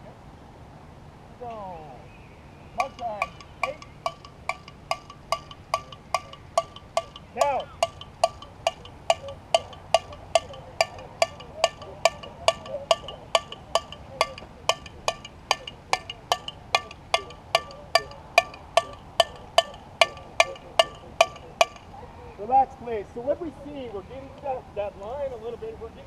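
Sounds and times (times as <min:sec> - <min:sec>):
drumsticks clicking: 0:02.8 - 0:21.9.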